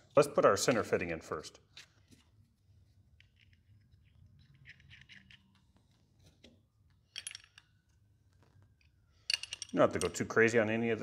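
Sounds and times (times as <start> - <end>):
air fitting clicking and scraping: 3.2 - 6.6.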